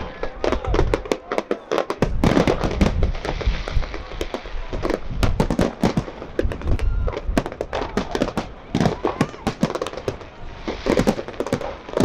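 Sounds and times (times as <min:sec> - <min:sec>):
fireworks bangs: 0:00.0 - 0:12.0
fireworks crackling hiss: 0:00.0 - 0:12.0.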